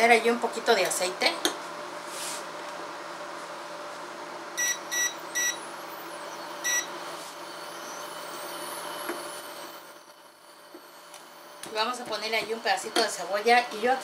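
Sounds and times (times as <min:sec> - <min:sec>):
steady hum: 0:00.0 - 0:14.0
short electronic beeps: 0:04.6 - 0:10.1.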